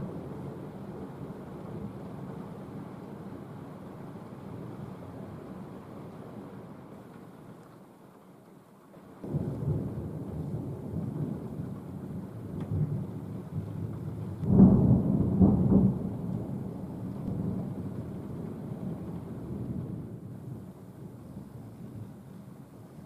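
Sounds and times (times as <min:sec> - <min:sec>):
rolling thunder: 0:09.2 - 0:22.1.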